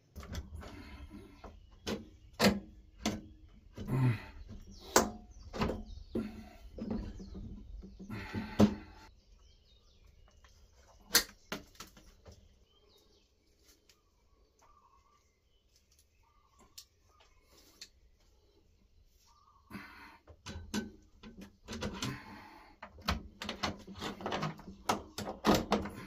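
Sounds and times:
knocks and clicks at cable terminals: 0.1s - 9.1s, 20.2s - 26.0s.

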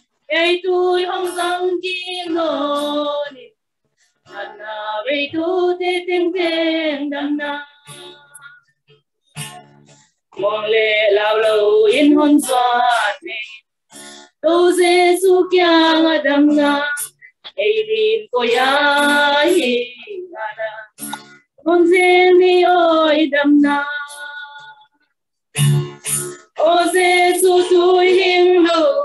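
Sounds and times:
women singing a hymn: 0.3s - 3.6s, 4.3s - 8.6s, 10.4s - 13.6s, 14.4s - 21.0s, 21.7s - 24.9s, 26.6s - 29.0s.

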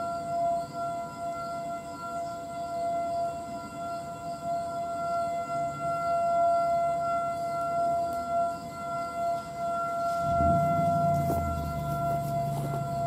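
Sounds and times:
distant warning sirens: 0.0s - 13.0s
low rumble: 10.2s - 13.0s.

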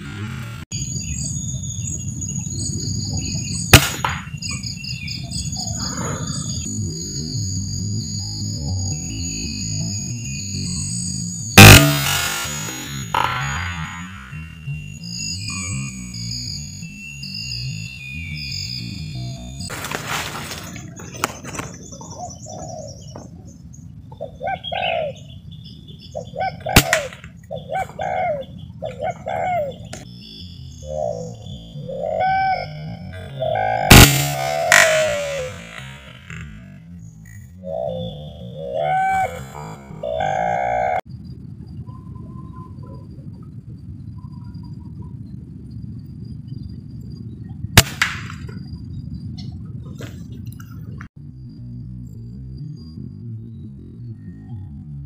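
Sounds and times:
wind rumble on microphone: 0.0s - 12.4s, 13.1s - 55.0s
sharp crack: 3.7s - 4.4s, 11.6s - 14.5s, 26.8s - 27.5s, 33.7s - 36.8s, 47.8s - 48.6s
rifle shots: 3.8s - 4.3s, 11.6s - 13.4s, 33.9s - 36.5s, 47.8s - 48.4s
dove cooing: 20.5s - 23.4s, 24.1s - 25.4s, 26.2s - 30.0s, 30.8s - 36.0s, 37.6s - 41.0s.

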